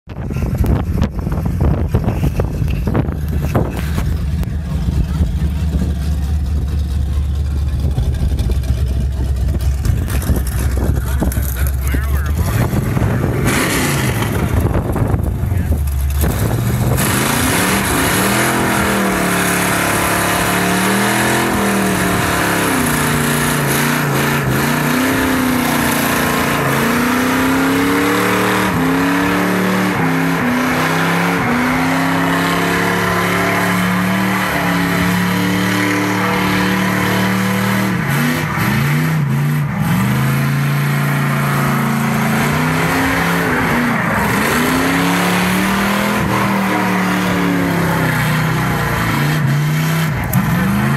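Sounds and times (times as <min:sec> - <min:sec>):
car engine revving: 0:00.1 - 0:50.9
tyres squealing on concrete: 0:20.5 - 0:39.2.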